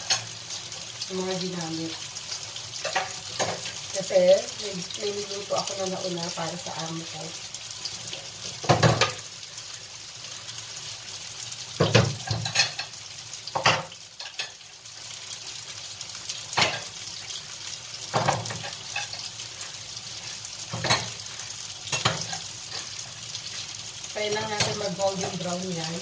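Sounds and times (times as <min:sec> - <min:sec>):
tofu sizzling in frying pan: 0:00.0 - 0:26.0
dishes clanking: 0:20.7 - 0:21.2.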